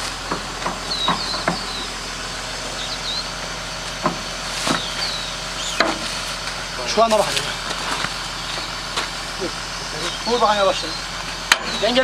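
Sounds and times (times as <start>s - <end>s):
excavator engine idling: 0.0s - 12.0s
sharp metal knocks: 5.8s - 6.1s, 11.5s - 11.8s.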